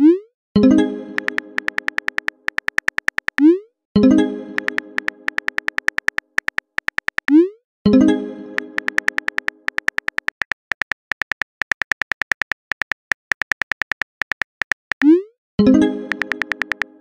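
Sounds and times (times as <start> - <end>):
phone keyboard typing clicks: 1.2 - 3.5, 4.6 - 7.4, 8.6 - 15.1, 16.1 - 17.0.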